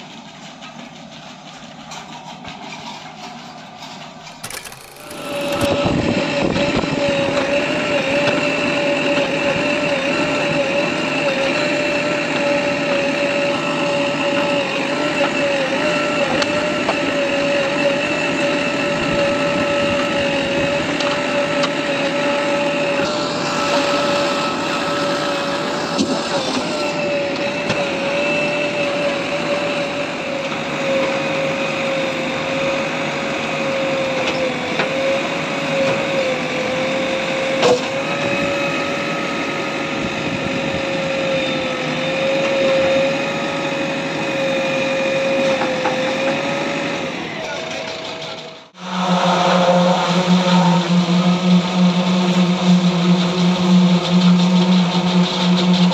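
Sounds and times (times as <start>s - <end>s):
machinery droning: 0.0s - 55.9s
steady whine: 0.0s - 55.9s
sharp click: 4.4s - 5.8s.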